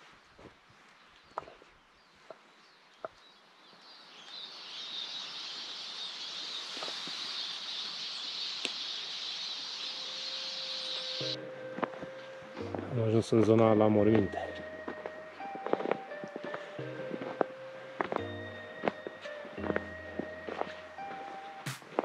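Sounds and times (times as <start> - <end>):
wind in tree tops: 0.0 - 22.0
sharp ticks: 8.6 - 8.8.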